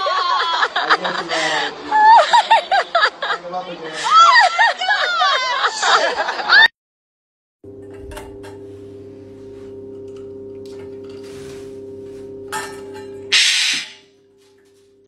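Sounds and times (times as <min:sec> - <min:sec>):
metal bowl ringing hum: 0:07.7 - 0:15.0.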